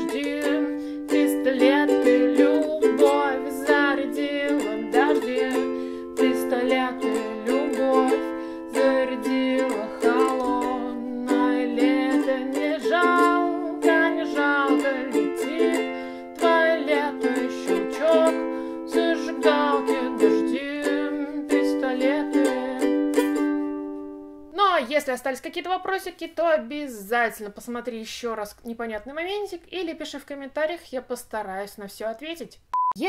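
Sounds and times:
ukulele strumming: 0.0 - 24.4.

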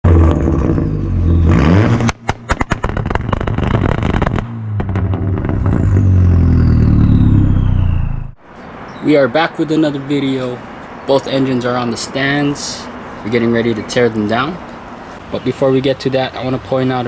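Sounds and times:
car engine revving: 0.0 - 8.4
engine sharp pops: 0.1 - 8.4
thin high whistle falling: 6.5 - 8.4.

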